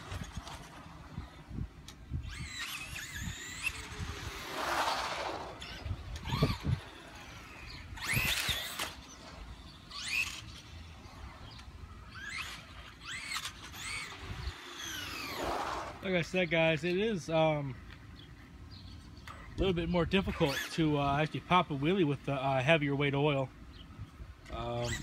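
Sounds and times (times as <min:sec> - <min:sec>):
electric motor whining: 0:00.0 - 0:16.1.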